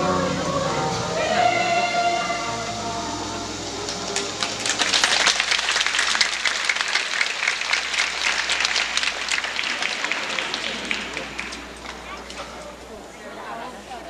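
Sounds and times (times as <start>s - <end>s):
audience applauding: 3.8s - 12.4s.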